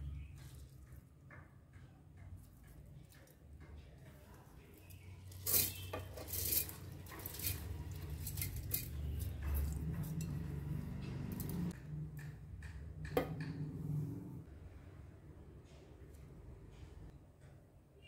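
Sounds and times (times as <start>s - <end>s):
rice grains pattering on metal: 2.4s - 11.8s.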